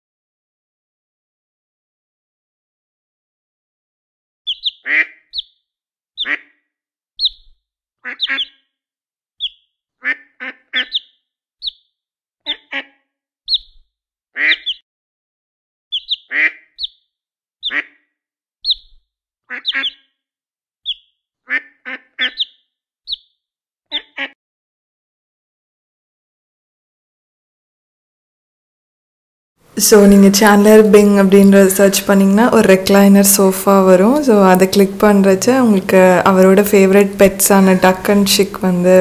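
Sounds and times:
cartoon duck quacking: 4.5 - 5.5, 6.2 - 6.6, 8.0 - 8.6, 10.0 - 11.1, 12.5 - 13.0, 14.4 - 14.8, 16.0 - 16.9, 17.6 - 18.1, 19.5 - 20.1, 21.5 - 22.6, 23.9 - 24.4
cartoon chick peeping: 4.5 - 5.6, 6.2 - 6.5, 7.2 - 8.6, 9.4 - 11.8, 12.5 - 13.8, 14.4 - 14.8, 15.9 - 17.0, 17.6 - 18.0, 18.6 - 20.1, 20.8 - 23.3, 23.9 - 24.4.

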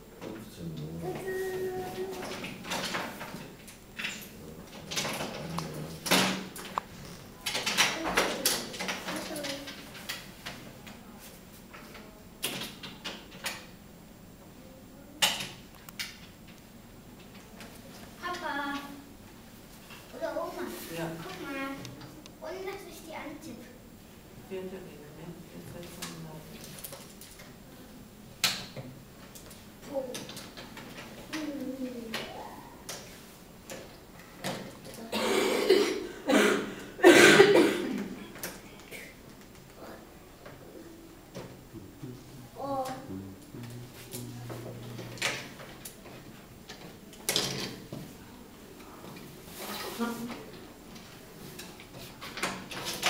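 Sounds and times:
person coughing: 35.1 - 38.2.

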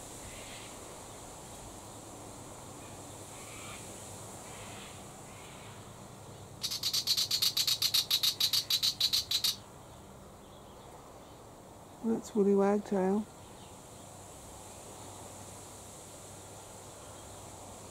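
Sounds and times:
bird chattering scold call: 6.6 - 9.6
faint bird calls: 6.6 - 9.6.

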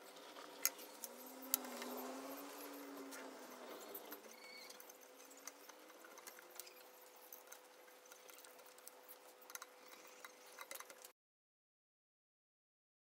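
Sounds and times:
screwdriver clicks and ticks: 0.6 - 2.8.

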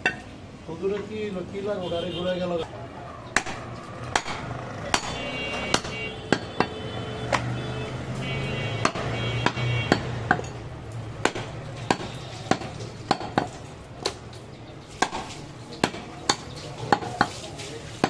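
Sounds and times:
chopper chopping on wooden block: 3.4 - 6.7, 11.2 - 14.2, 15.0 - 17.4.

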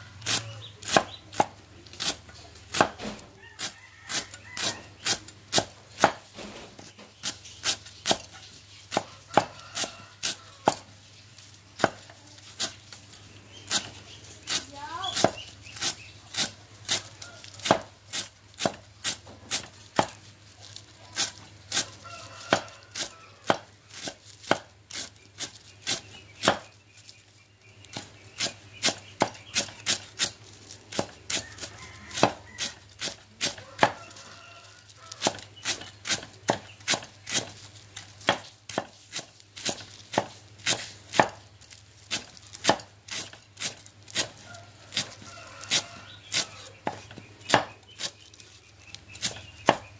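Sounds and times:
cleaver chopping on wooden board: 0.2 - 6.3, 7.2 - 8.3, 8.9 - 10.9, 11.8 - 12.7, 14.5 - 20.2, 22.5 - 26.7, 27.9 - 31.4, 32.1 - 34.0, 35.2 - 37.5, 38.2 - 41.4, 42.1 - 48.2, 49.2 - 49.9.

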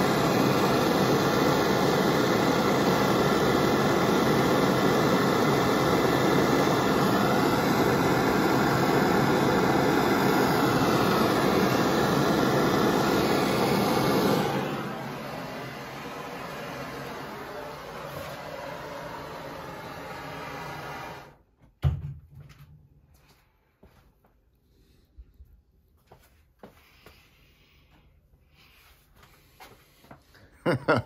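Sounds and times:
gas torch hissing: 0.0 - 21.4.

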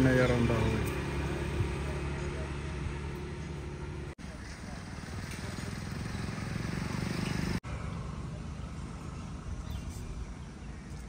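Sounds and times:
vehicle engine running: 0.0 - 9.8.

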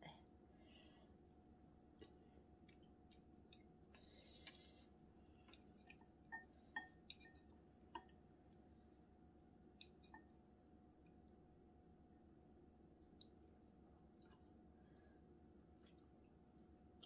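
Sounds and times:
faint steady hum: 0.0 - 17.0
chopsticks tapping bowls: 5.8 - 8.2.

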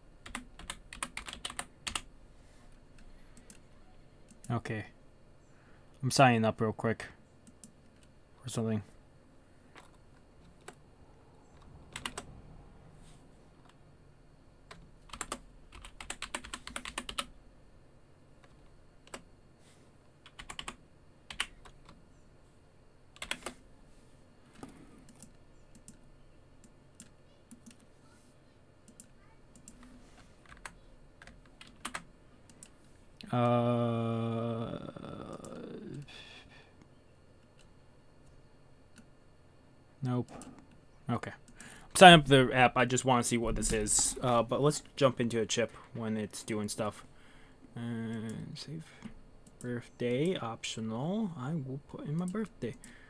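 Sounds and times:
typing on a keyboard: 0.2 - 2.1, 11.9 - 12.3, 14.7 - 17.3, 20.2 - 22.0, 23.2 - 23.6, 30.5 - 32.7
low vocal sound falling in pitch: 33.2 - 36.1.

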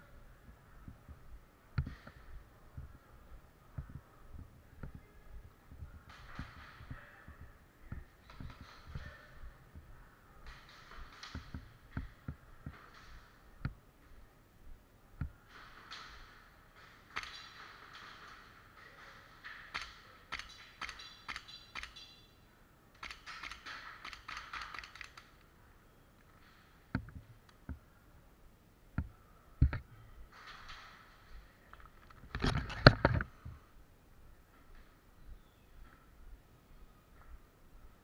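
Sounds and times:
sharp clicks: 19.4 - 22.3, 22.9 - 25.5.

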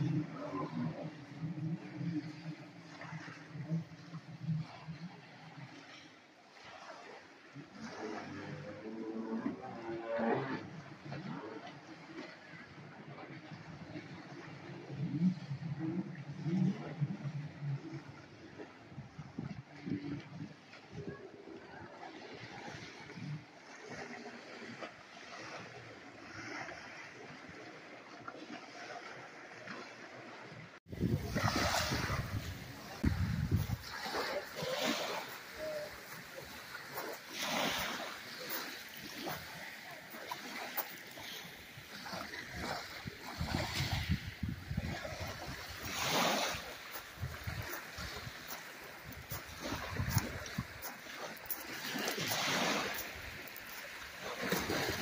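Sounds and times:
small waves washing on beach: 0.0 - 55.0
wind on microphone: 12.5 - 24.6, 30.9 - 55.0
waves washing onto pebbles: 30.8 - 55.0.

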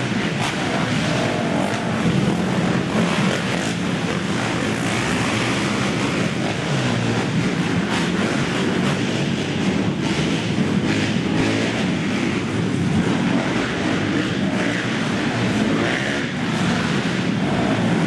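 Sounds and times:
quad engines revving: 0.0 - 18.0.

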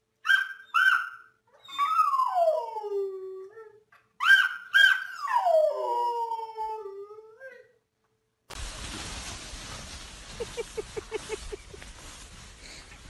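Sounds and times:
dog yelping and howling: 0.2 - 7.8.

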